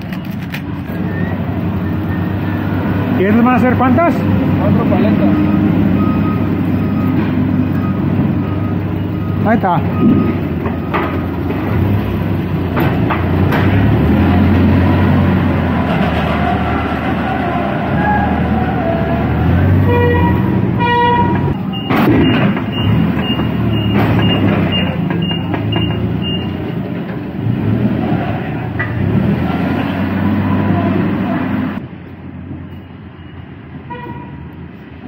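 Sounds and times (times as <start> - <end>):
forklift engines running: 0.0 - 35.0
high backup beeps: 1.0 - 4.0, 4.6 - 12.0, 19.9 - 26.6, 32.6 - 33.7
horn toots: 19.6 - 23.0, 33.9 - 34.5.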